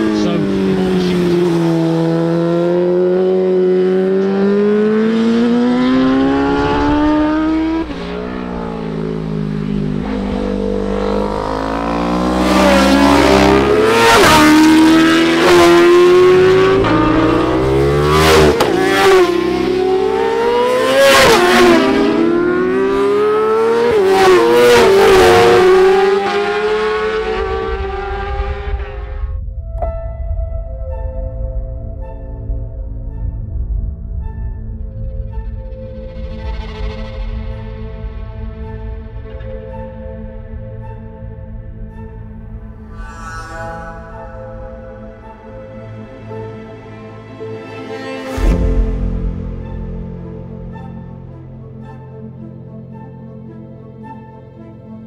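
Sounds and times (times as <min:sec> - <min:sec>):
racing motorcycles accelerating: 0:00.0 - 0:29.2.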